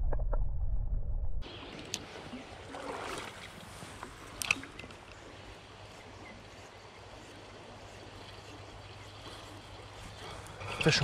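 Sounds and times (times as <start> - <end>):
creek water rushing: 1.8 - 5.9.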